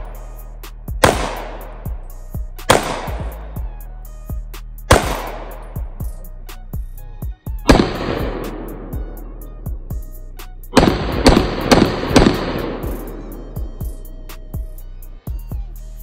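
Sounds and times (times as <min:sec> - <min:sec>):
music with steady beat: 0:00.0 - 0:16.0
pistol shots echoing: 0:01.0 - 0:02.0, 0:02.7 - 0:03.4, 0:04.9 - 0:05.9, 0:07.7 - 0:09.5, 0:10.8 - 0:13.9.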